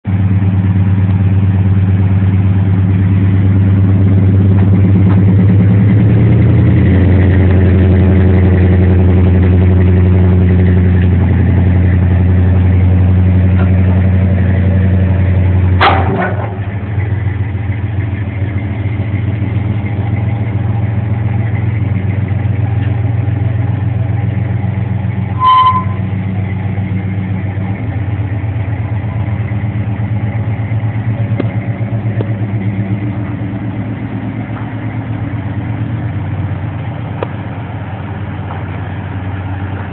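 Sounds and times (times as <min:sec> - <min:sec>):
vehicle engine running: 0:00.0 - 0:39.9
sharp clunk: 0:15.8 - 0:16.6
short high beep: 0:25.4 - 0:26.0.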